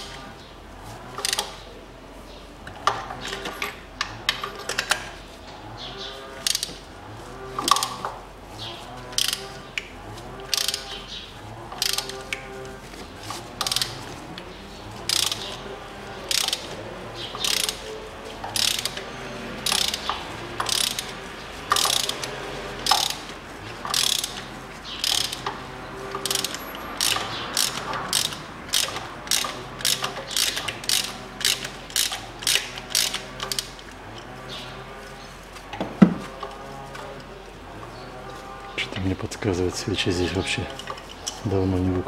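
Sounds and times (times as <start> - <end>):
ratchet wrench clicking: 1.2 - 1.5, 6.4 - 6.8, 7.6 - 8.0, 9.2 - 11.0, 11.7 - 12.3, 13.6 - 14.0, 15.0 - 15.6, 16.3 - 16.7, 17.3 - 24.4, 25.0 - 25.6, 26.2 - 33.8.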